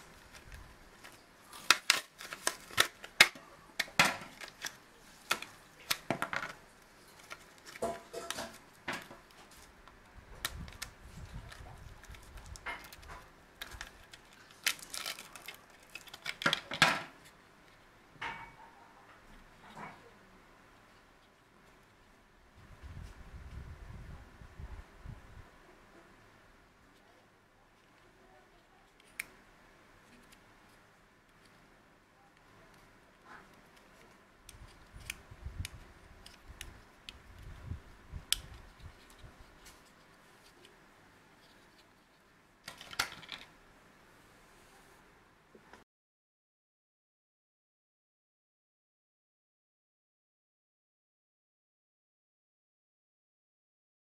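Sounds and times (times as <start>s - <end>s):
plastic packaging crackling: 0.0s - 9.8s, 10.4s - 17.4s, 42.7s - 43.5s.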